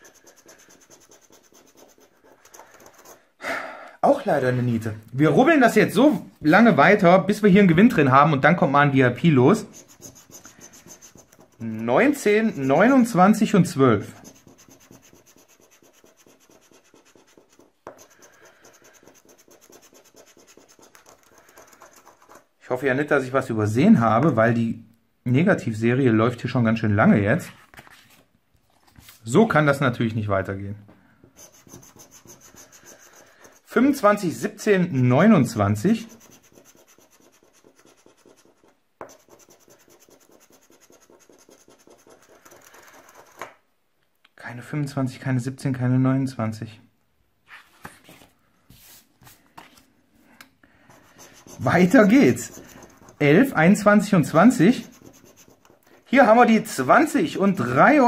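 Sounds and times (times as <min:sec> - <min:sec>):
scratch-off ticket being scraped: 0:00.0 - 0:03.2, 0:09.5 - 0:13.2, 0:14.0 - 0:22.4, 0:31.4 - 0:34.1, 0:35.2 - 0:43.4, 0:51.0 - 0:55.9.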